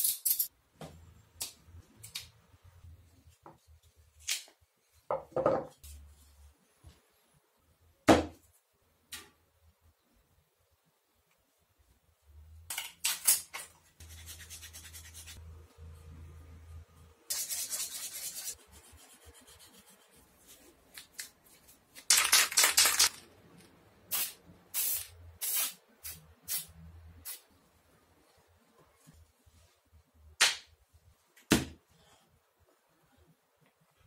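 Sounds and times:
sanding strokes: 0:14.0 - 0:15.4
spray paint hissing: 0:24.1 - 0:27.4.

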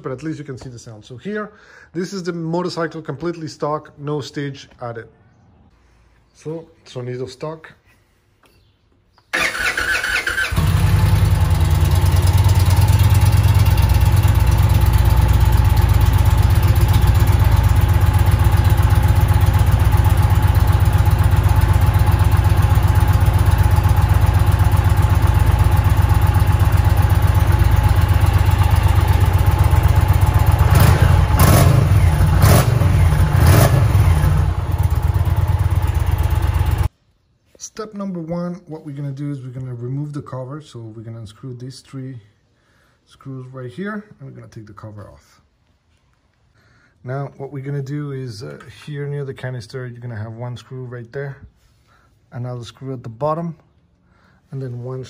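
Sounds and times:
motorcycle engine cranking: 0:09.3 - 0:36.8
engine revving bursts: 0:09.4 - 0:13.3, 0:29.7 - 0:35.9
motorcycle engine idling: 0:09.4 - 0:36.9.

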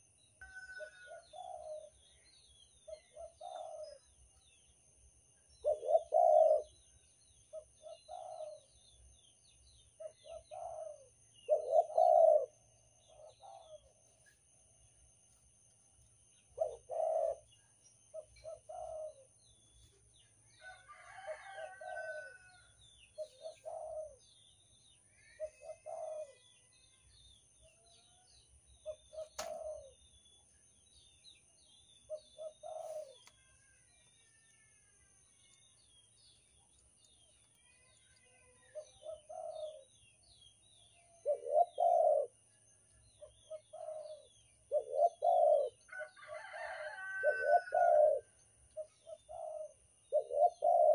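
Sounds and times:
dove cooing: 0:00.0 - 0:02.0, 0:02.9 - 0:04.1, 0:05.6 - 0:06.8, 0:07.5 - 0:08.7, 0:10.0 - 0:13.9, 0:16.6 - 0:17.5, 0:18.1 - 0:19.3, 0:23.2 - 0:24.2, 0:25.4 - 0:26.5, 0:28.8 - 0:30.0, 0:32.1 - 0:33.2, 0:38.7 - 0:39.9, 0:41.2 - 0:42.4, 0:43.5 - 0:50.9
small birds chirping faintly: 0:00.0 - 0:50.9.

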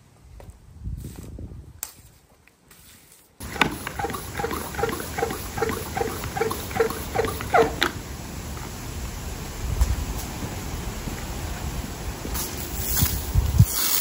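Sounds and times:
squeaky hand pump strokes: 0:03.4 - 0:08.0.

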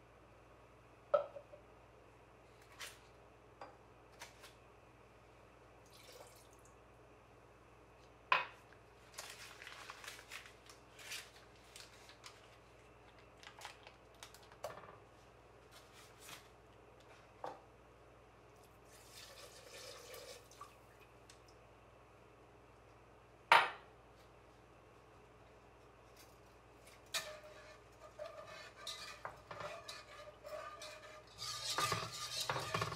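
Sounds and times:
sugar pouring into saucepan: 0:18.9 - 0:20.5.

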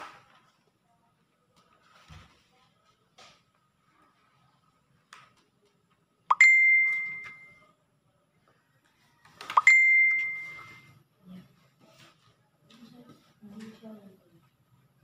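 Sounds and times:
ding sound effect: 0:06.3 - 0:07.6, 0:09.6 - 0:10.9.

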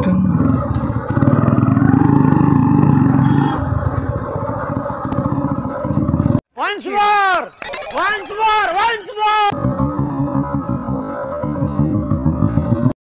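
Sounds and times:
small motorcycle engine running: 0:00.0 - 0:06.4.

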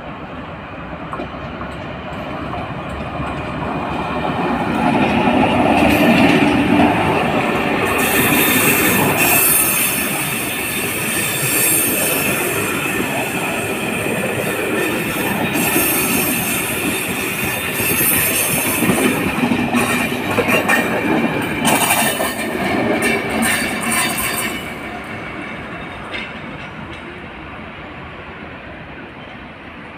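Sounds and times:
train wheel squeal: 0:07.4 - 0:27.2, 0:29.0 - 0:29.9.

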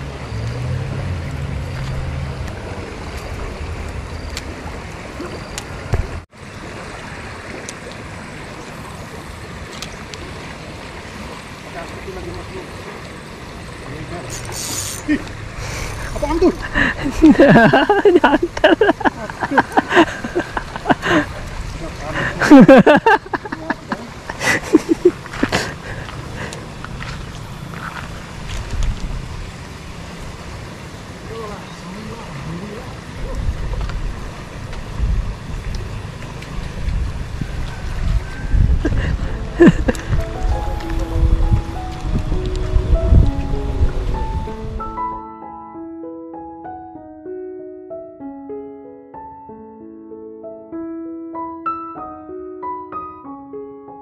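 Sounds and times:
river rushing: 0:00.0 - 0:45.2
low rumble: 0:38.0 - 0:44.8.

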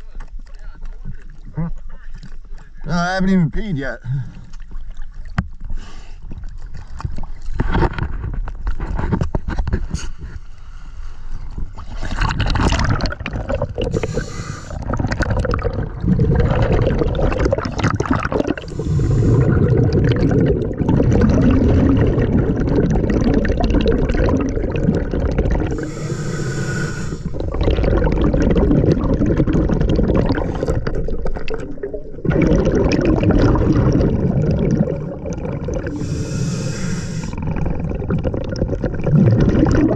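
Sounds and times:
water splashing and gurgling: 0:04.1 - 0:10.2, 0:11.4 - 0:39.9
muffled underwater rumble: 0:06.3 - 0:39.9.

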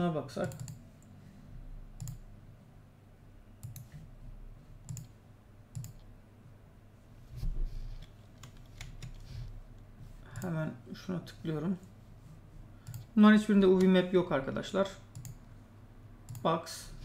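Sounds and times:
computer mouse clicks: 0:00.4 - 0:01.2, 0:02.0 - 0:02.2, 0:03.6 - 0:04.0, 0:04.8 - 0:06.1, 0:08.0 - 0:09.3, 0:12.8 - 0:13.1, 0:14.8 - 0:15.4, 0:16.3 - 0:16.5.

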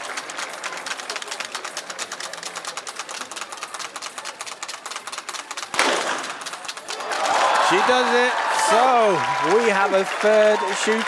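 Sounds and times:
audience clapping: 0:00.0 - 0:11.0
pistol shot: 0:05.8 - 0:06.5.

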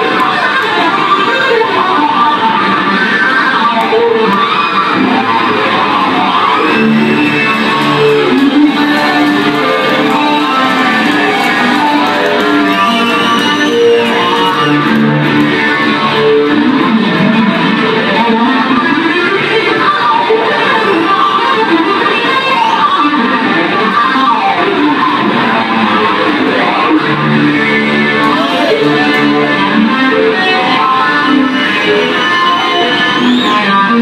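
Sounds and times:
acoustic guitars playing: 0:07.4 - 0:16.9.

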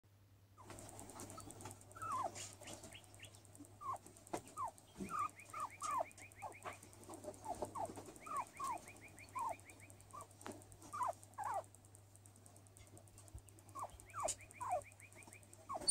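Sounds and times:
guinea pig squeaking: 0:00.6 - 0:15.9.

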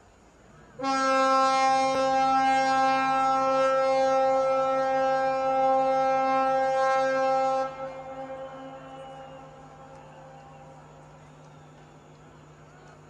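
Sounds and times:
ship's horn blast: 0:00.7 - 0:12.0.

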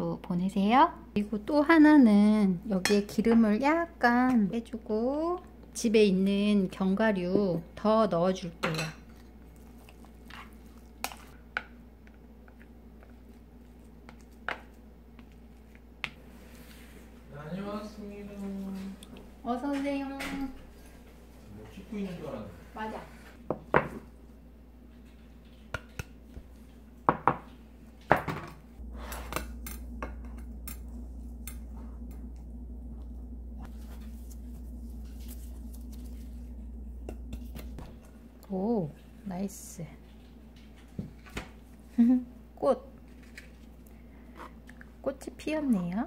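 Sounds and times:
low steady hum: 0:00.0 - 0:46.0
soft squishing of sticky rice: 0:09.2 - 0:11.4, 0:32.9 - 0:40.2.

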